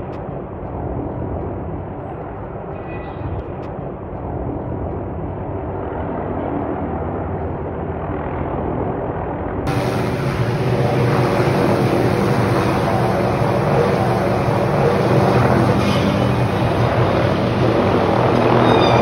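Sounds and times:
helicopter rotor and engine drone: 0.0 - 19.0.

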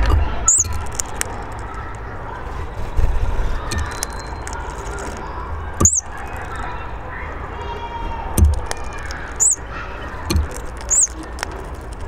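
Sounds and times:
hawfinch calls: 0.5 - 0.7, 5.8 - 6.1, 9.3 - 9.8, 10.8 - 11.2.

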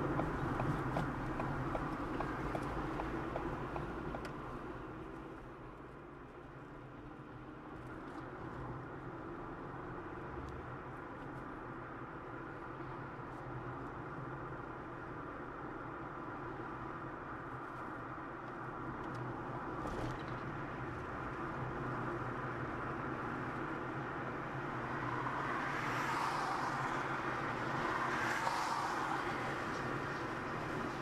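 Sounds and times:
vehicles passing by: 0.0 - 5.6, 19.7 - 31.0
road vehicle hum and hiss: 0.0 - 31.0.

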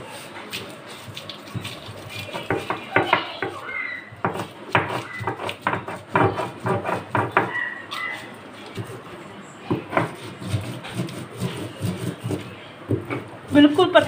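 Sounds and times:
stone crushing scrapes: 9.8 - 13.3.

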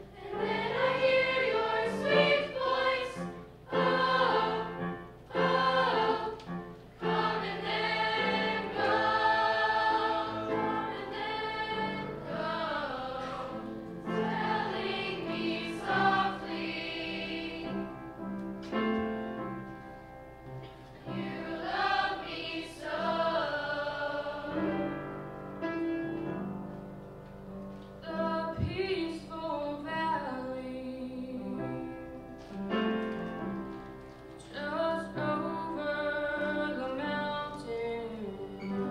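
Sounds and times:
choir singing: 0.0 - 18.2, 21.0 - 25.4.

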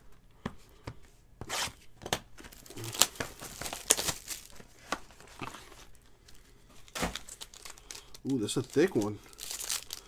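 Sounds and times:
foil wrapper crinkling: 2.5 - 10.0.

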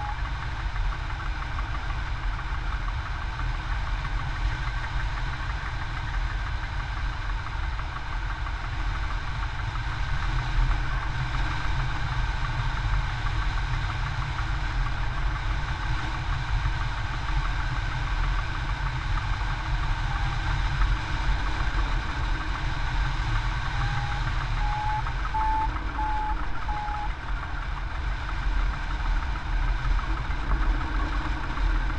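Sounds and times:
electronic beeps: 23.8 - 27.1.

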